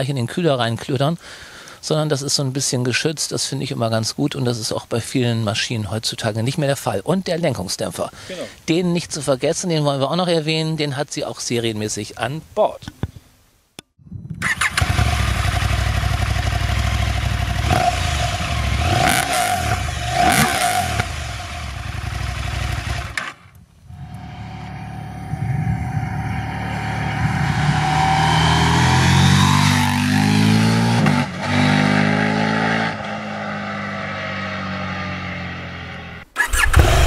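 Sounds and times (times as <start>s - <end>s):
motorcycle engine revving: 14.4s - 23.2s, 23.9s - 37.0s
motorcycle accelerating past: 14.6s - 23.2s, 23.9s - 36.2s.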